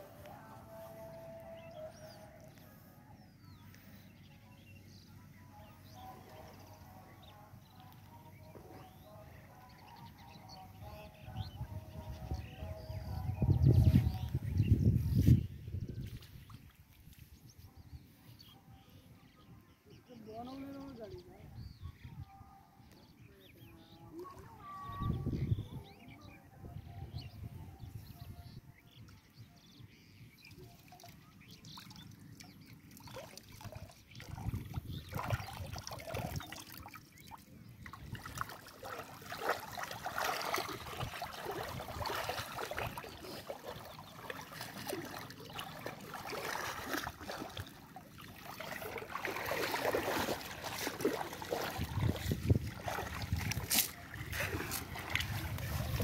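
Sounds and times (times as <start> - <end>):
water trickling and sloshing: 5.9 - 18.5, 30.0 - 56.0.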